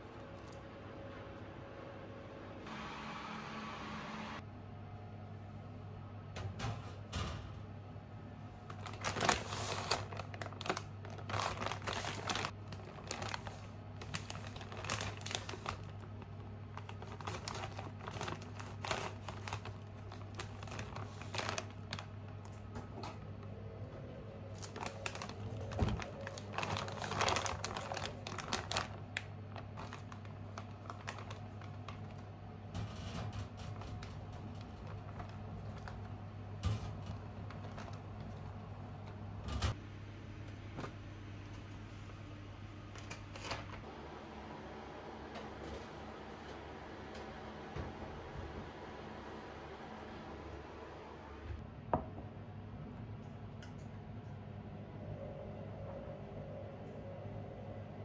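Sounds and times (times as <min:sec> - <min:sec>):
steady low hum: 0:00.0 - 0:58.0
plastic bag crinkling: 0:08.7 - 0:22.7, 0:24.5 - 0:32.3, 0:32.9 - 0:38.6.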